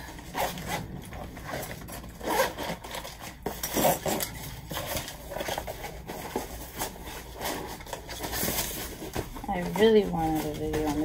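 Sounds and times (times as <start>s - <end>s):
backpack zipper being pulled open: 0.2s - 4.2s.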